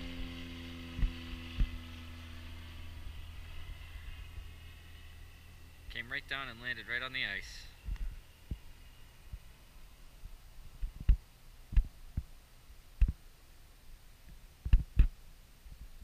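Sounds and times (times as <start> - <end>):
dull low thumps: 10.2 - 12.4.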